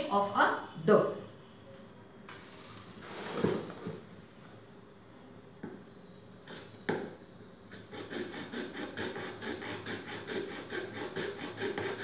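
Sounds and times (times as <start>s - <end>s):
saw rasping through plastic pipe: 7.7s - 12.0s.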